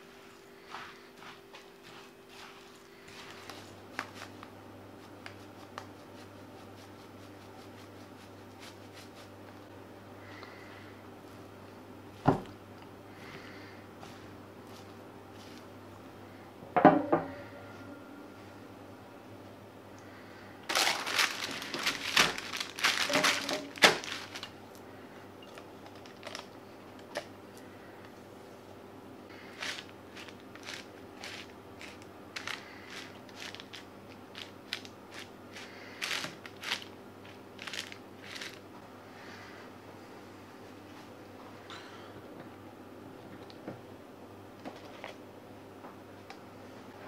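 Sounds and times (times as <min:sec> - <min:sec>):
spatula scraping granola: 0:29.4 - 0:36.8.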